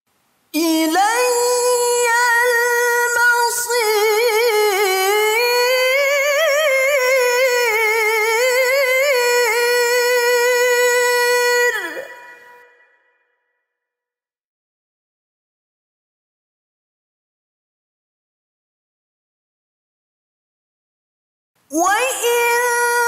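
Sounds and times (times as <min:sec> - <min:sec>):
woman reciting in chant: 0:00.5 - 0:12.8, 0:21.7 - 0:23.0.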